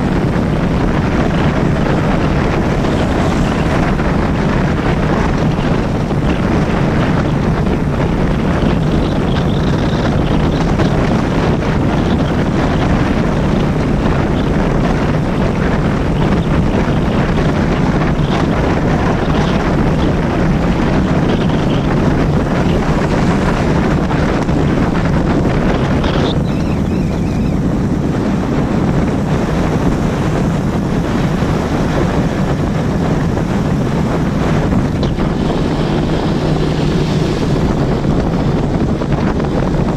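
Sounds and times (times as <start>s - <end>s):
low rumble: 0.0s - 39.9s
wind noise on microphone: 0.0s - 39.9s.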